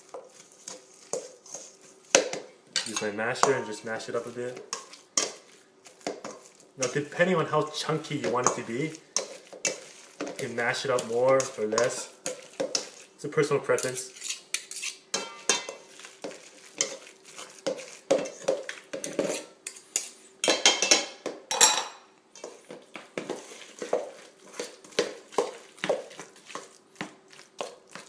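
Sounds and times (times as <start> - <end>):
masher scraping a steel bowl: 5.2 - 20.1.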